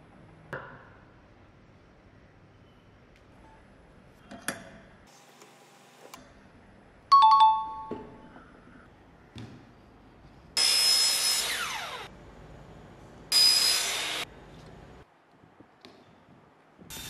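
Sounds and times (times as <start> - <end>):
miter saw cutting plastic pipe: 10.6 - 12.1.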